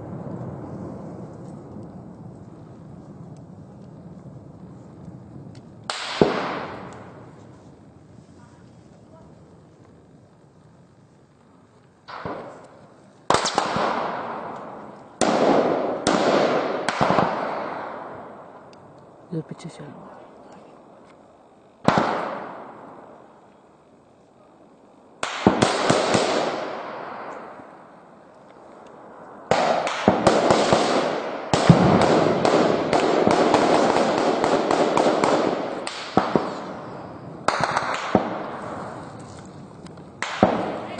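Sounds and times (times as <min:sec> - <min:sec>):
gunshots with echoing tail: 0:05.9 - 0:07.2, 0:12.1 - 0:18.6, 0:21.8 - 0:23.2, 0:25.2 - 0:27.7, 0:29.1 - 0:39.0, 0:40.2 - 0:40.9
automatic gunfire: 0:13.3 - 0:14.6, 0:15.2 - 0:18.0, 0:21.8 - 0:22.7, 0:25.2 - 0:27.3, 0:29.5 - 0:36.7, 0:37.5 - 0:38.6, 0:40.2 - 0:40.9.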